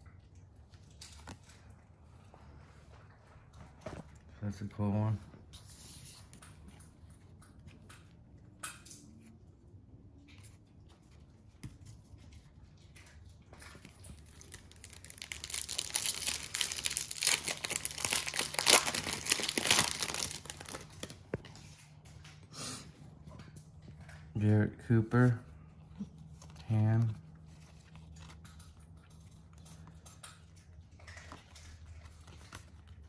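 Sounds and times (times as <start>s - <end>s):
soft handling sounds: 0.9s - 30.0s
foil wrapper tearing and crinkling: 14.3s - 21.3s.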